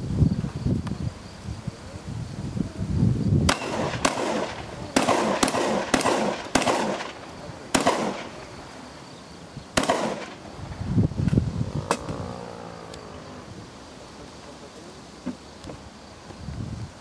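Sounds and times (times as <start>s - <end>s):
shotgun shots with echo: 3.5s - 8.4s, 9.8s - 10.4s.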